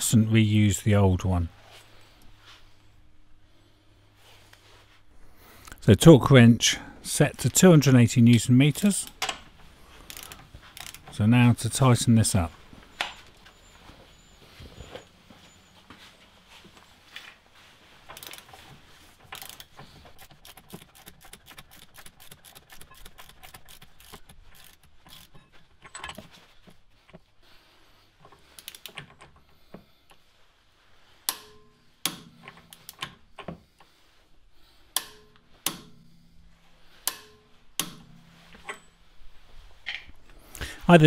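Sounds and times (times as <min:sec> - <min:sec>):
torque wrench ratchet clicking: 0:10.1 - 0:11.1, 0:18.2 - 0:18.5, 0:19.3 - 0:25.4, 0:28.6 - 0:29.0.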